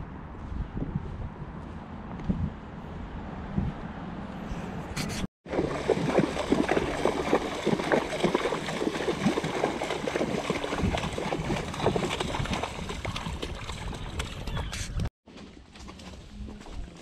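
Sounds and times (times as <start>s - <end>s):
horse hooves splashing in water: 5.5s - 17.0s.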